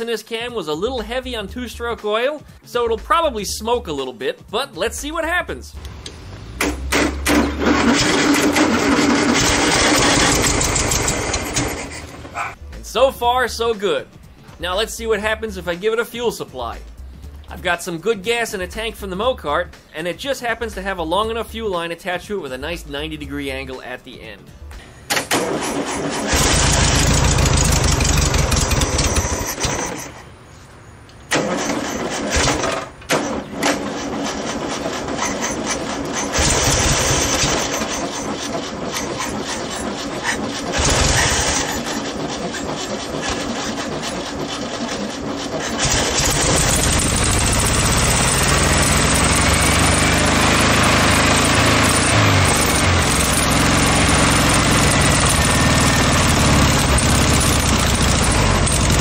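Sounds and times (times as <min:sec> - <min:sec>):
car engine cranking and running: 0:05.8 - 0:12.5, 0:25.1 - 0:30.2, 0:31.3 - 0:59.0.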